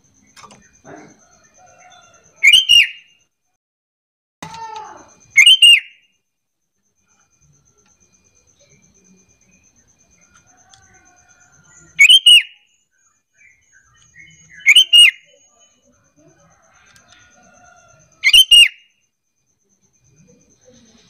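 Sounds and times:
bird whistled call: 2.4 - 3.1, 5.3 - 6.0, 12.0 - 12.6, 13.5 - 15.3, 18.2 - 18.9.

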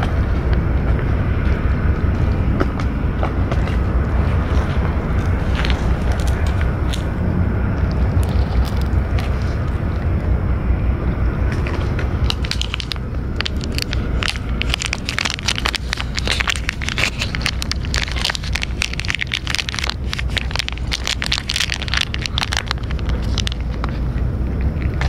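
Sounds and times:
cats chewing and smacking: 0.0 - 25.0
steady low rumble: 0.0 - 25.0.

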